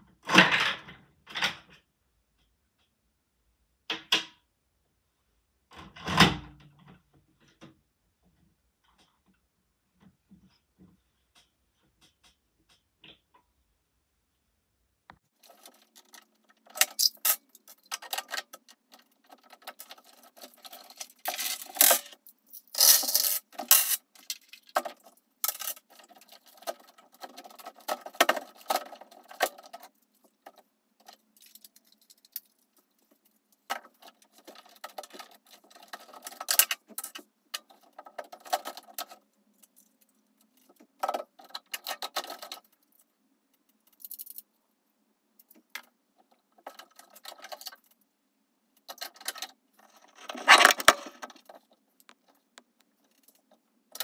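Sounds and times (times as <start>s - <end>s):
plastic bricks clicking and snapping: 15.4s - 32.8s, 33.6s - 42.8s.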